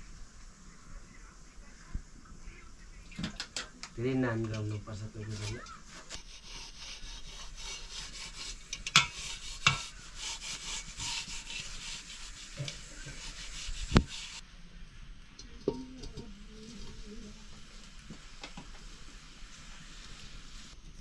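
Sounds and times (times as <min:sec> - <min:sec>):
rough scraping: 0:04.7 - 0:14.4.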